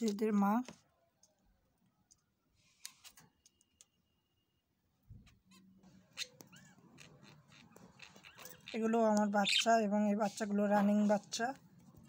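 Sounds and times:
bird chirping softly: 5.2 - 10.4.

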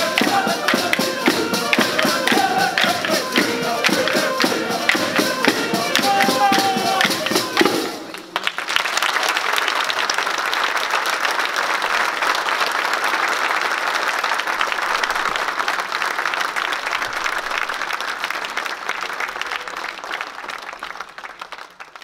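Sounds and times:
crowd applauding: 0.0 - 22.0.

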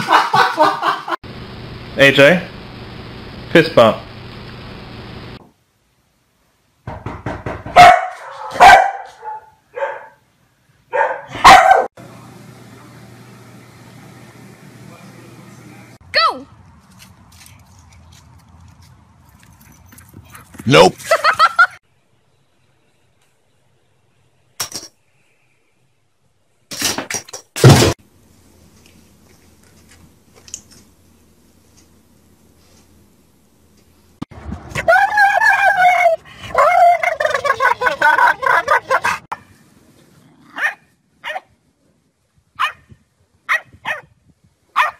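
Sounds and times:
dog barking: 7.7 - 10.2, 10.9 - 11.9, 40.6 - 41.5, 42.6 - 42.8, 43.5 - 44.1.

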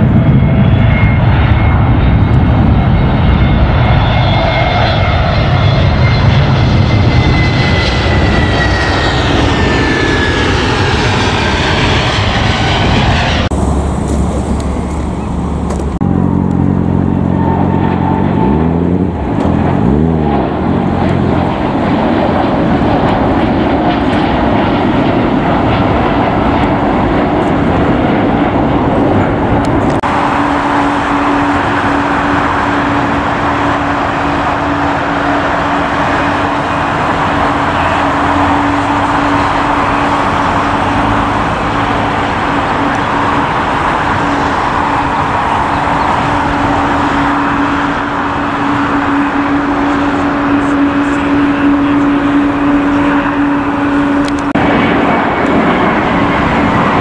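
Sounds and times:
distant jet engine noise: 0.0 - 57.0
jet airliner roar and whine: 0.0 - 57.0.

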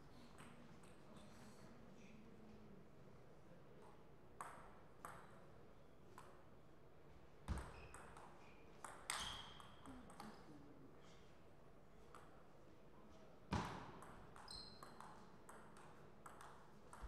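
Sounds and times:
ball hitting paddle and table: 4.4 - 5.4, 7.5 - 10.4, 13.5 - 17.0
table tennis ball bouncing: 4.4 - 5.4, 7.5 - 10.4, 13.6 - 17.0.

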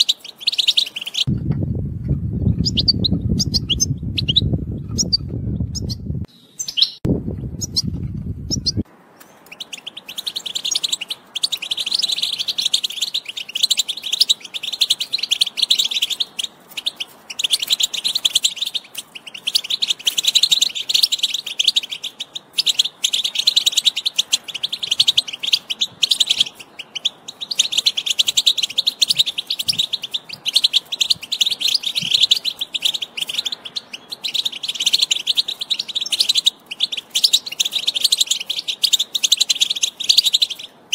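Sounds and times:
goldfinch twittering song: 0.0 - 1.4, 2.4 - 40.9
low rumble: 1.3 - 6.3, 7.1 - 8.8.

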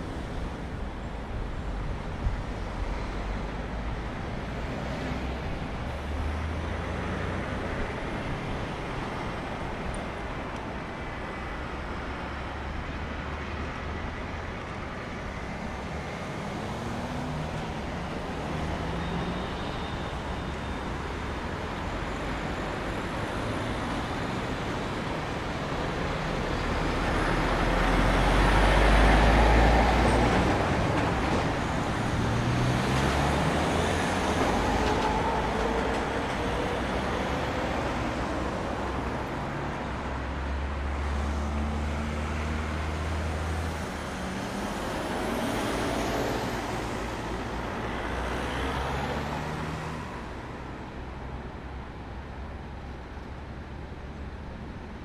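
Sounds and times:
vehicles passing: 0.0 - 55.0
engines revving pulling away: 26.6 - 38.2.

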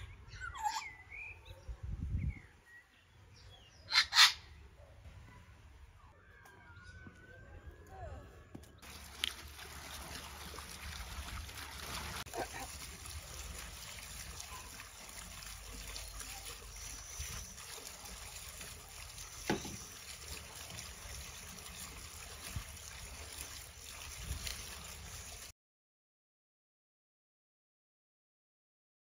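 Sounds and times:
water trickling and sloshing: 8.5 - 25.5.

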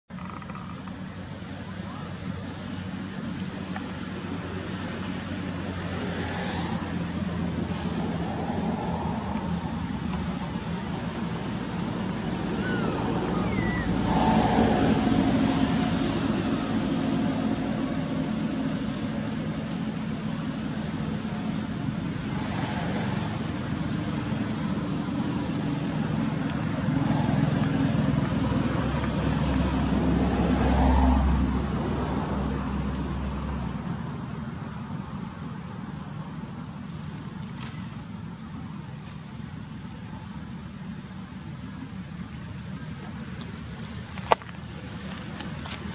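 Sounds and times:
passing cars: 0.2 - 45.9.

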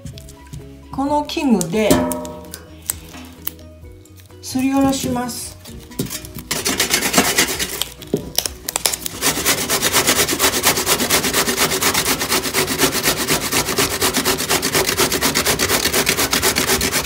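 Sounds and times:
zucchini scraping on box grater: 6.1 - 8.0, 9.1 - 17.0.

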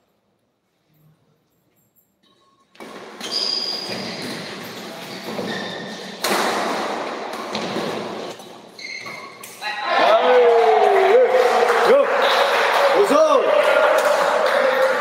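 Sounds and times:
shoes squeaking on court: 2.2 - 6.2, 7.3 - 9.6
crowd noise in large hall: 2.6 - 15.0.

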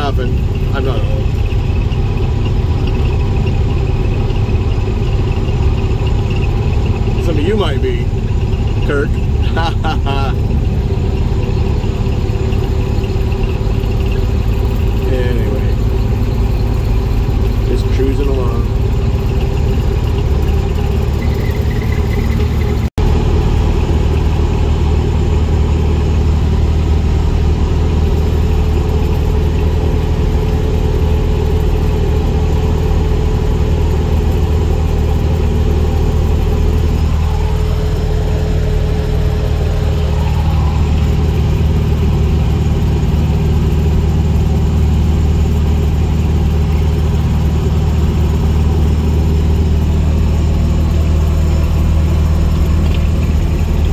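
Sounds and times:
car engine droning: 0.0 - 53.9
road noise: 0.0 - 53.9.

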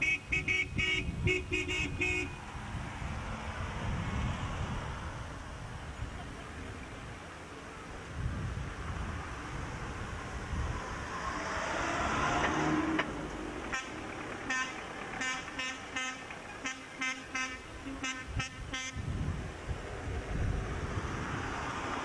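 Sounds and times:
car horn short beeps: 0.0 - 2.4
car driving past: 9.1 - 16.7.

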